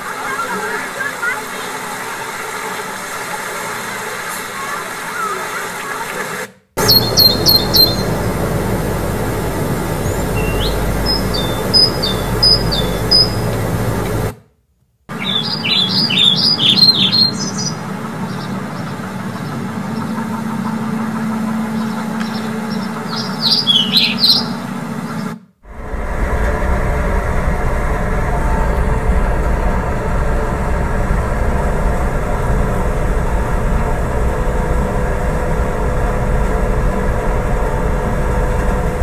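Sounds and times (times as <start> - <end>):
steady background noise: 0.0 - 14.4, 15.1 - 39.0
low rumble of boat interior: 6.8 - 14.3, 15.1 - 39.0
small birds chirping: 6.8 - 14.3, 15.1 - 25.3.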